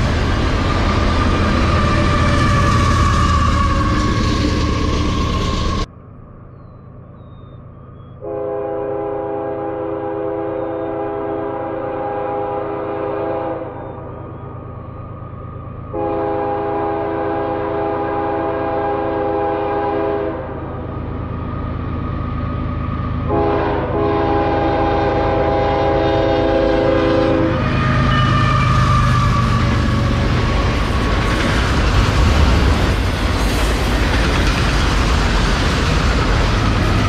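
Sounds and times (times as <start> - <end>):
train wheel noise: 0.0 - 8.6, 9.5 - 37.0
locomotive engine rumble: 0.0 - 37.0
train horn blasts: 8.2 - 13.9, 15.9 - 20.7, 23.3 - 30.0.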